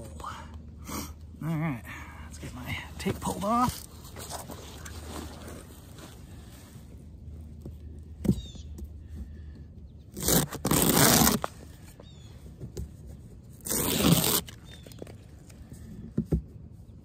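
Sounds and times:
tape ripping off: 10.1 - 11.6, 13.6 - 15.2.

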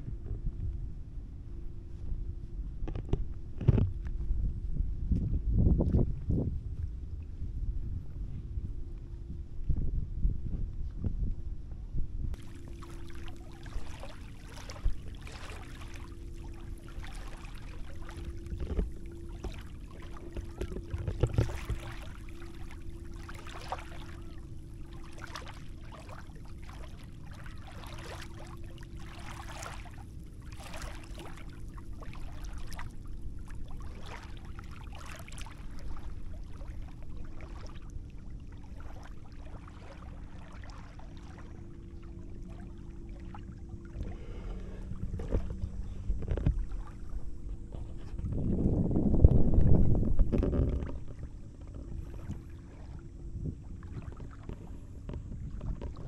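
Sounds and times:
faint steady hum: 0.0 - 56.0
low steady rumble: 0.0 - 56.0
small waves lapping at shore: 12.4 - 48.2.

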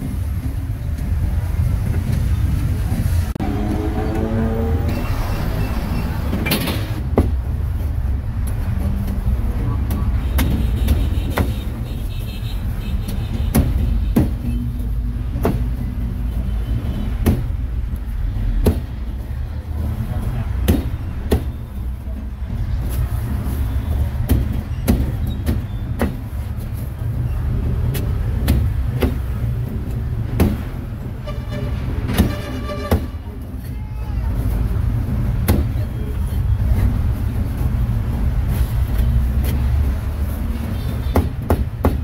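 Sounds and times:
traffic rumbling: 0.0 - 42.0
sharp knocks: 41.1 - 42.0.

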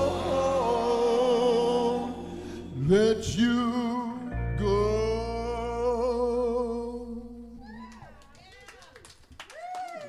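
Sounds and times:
man singing into microphone: 0.0 - 7.6
music: 0.0 - 7.6.

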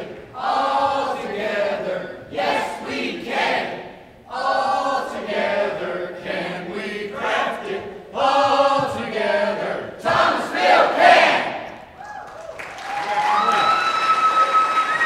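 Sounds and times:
group singing in unison: 0.0 - 11.8.

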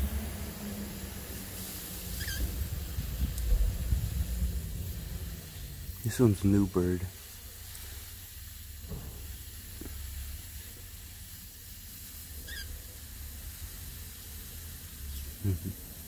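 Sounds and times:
spray nozzle hissing: 0.0 - 16.0.

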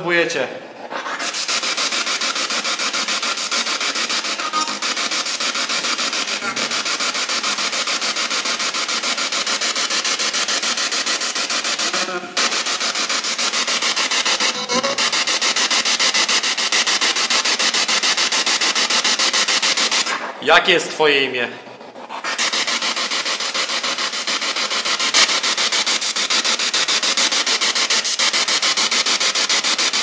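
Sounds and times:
snatches of broadcast voice: 0.0 - 7.5, 11.7 - 12.6, 20.4 - 21.7
pulsing radio static: 1.0 - 9.4, 11.4 - 16.3, 25.0 - 25.5.

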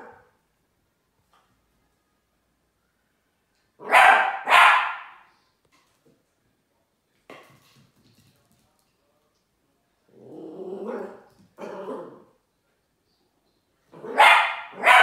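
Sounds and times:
puppy barking: 0.0 - 0.3, 3.8 - 5.3, 14.0 - 15.0.

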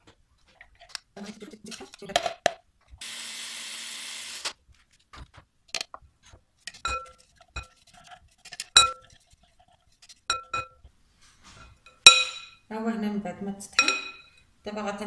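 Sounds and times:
blender motor grinding: 3.0 - 4.5
bowl clinking against glass: 6.7 - 7.7, 10.3 - 10.8, 11.6 - 12.6, 13.8 - 14.4.

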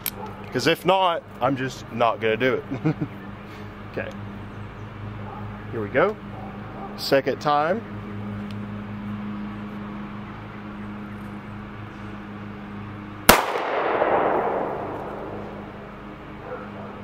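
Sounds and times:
pistol shot with echo: 13.3 - 15.9.

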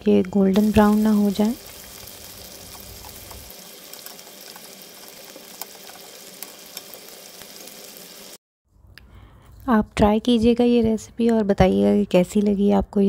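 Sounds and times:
food deep-frying in oil: 0.4 - 8.4.

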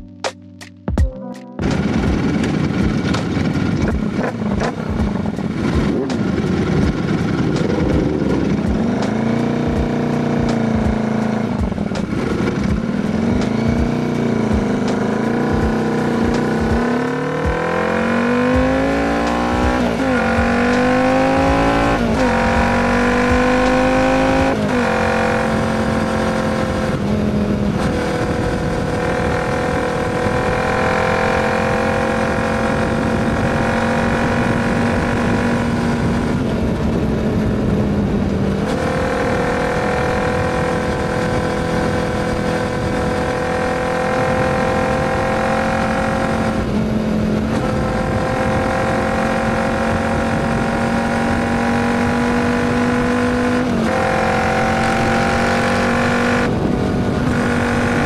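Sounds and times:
motorcycle engine accelerating: 1.0 - 58.0.

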